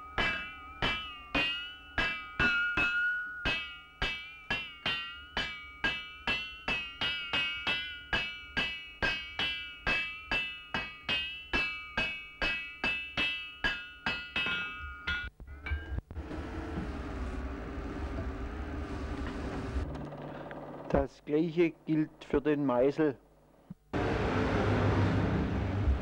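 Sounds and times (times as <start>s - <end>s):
hammer striking steel on anvil: 0.0s - 16.0s.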